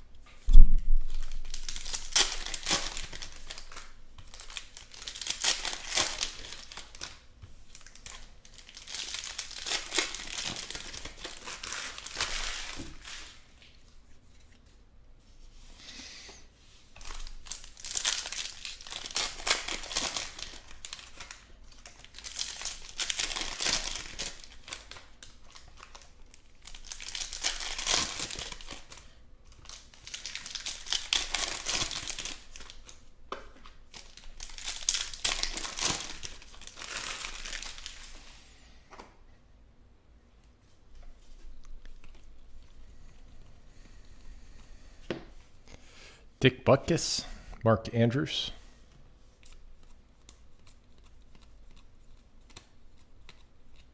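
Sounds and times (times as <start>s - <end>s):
foil wrappers tearing and crinkling: 1.0s - 13.6s, 17.0s - 33.1s, 33.8s - 38.3s.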